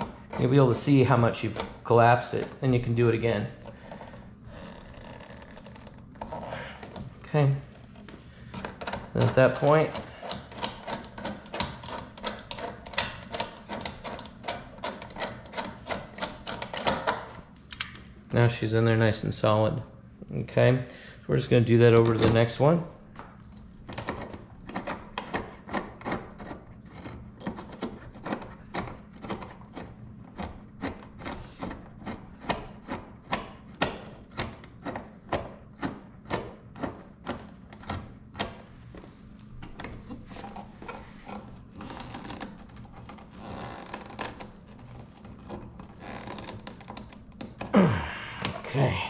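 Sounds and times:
rubbing and scraping: 0:24.0 - 0:47.6.

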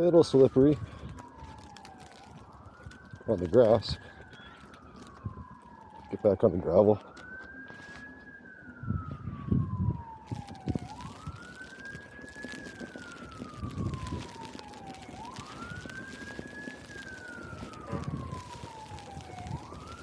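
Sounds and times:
emergency siren wailing: 0:00.0 - 0:20.0
footsteps crunching in snow: 0:07.2 - 0:08.4.

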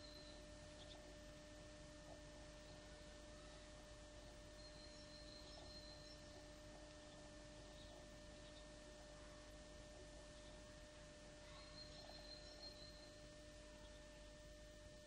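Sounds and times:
faint high chirps: 0:00.0 - 0:01.0, 0:04.5 - 0:06.5, 0:11.4 - 0:14.0
faint steady hum: 0:00.0 - 0:15.0.

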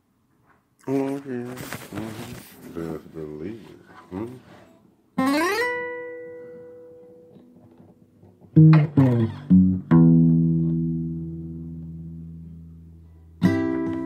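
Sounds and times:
guitar notes ringing: 0:05.2 - 0:14.0.

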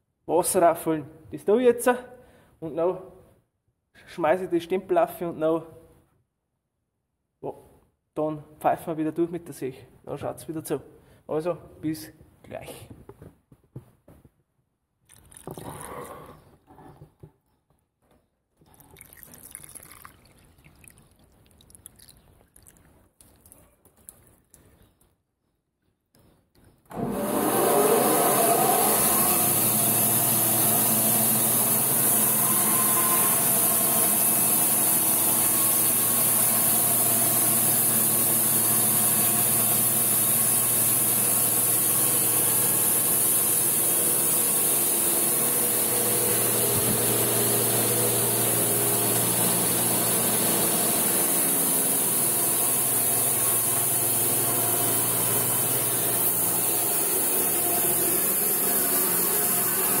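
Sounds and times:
band sawmill sawing log: 0:26.9 - 1:00.0.

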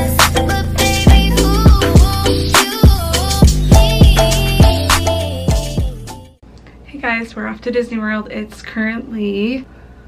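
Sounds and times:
wavering lead melody: 0:00.0 - 0:06.2
background music with quick beat: 0:00.0 - 0:06.3.

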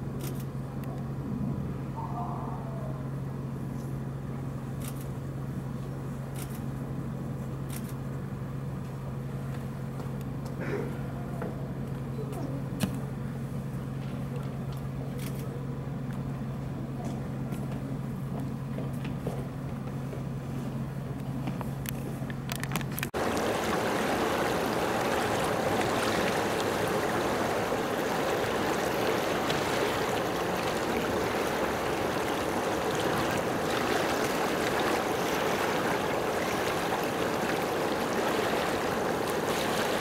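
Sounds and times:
low steady hum: 0:00.0 - 0:40.0
moving water: 0:10.6 - 0:40.0.

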